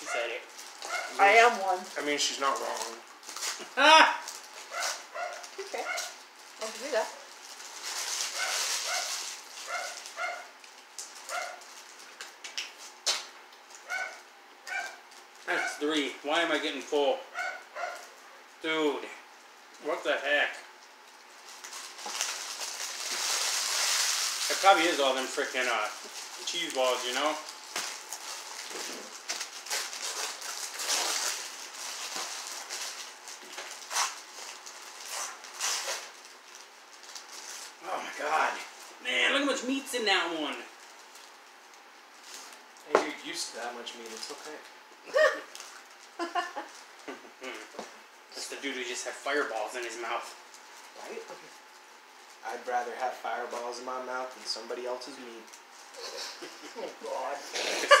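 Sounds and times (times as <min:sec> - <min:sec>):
small dog yapping: 0:00.0 - 0:01.2, 0:04.0 - 0:06.2, 0:08.3 - 0:10.6, 0:11.3 - 0:11.6, 0:13.8 - 0:15.8, 0:17.3 - 0:18.1
paper wrappers crinkling: 0:00.0 - 0:16.1, 0:19.8 - 0:38.9, 0:40.7 - 0:47.7, 0:48.4 - 0:58.0.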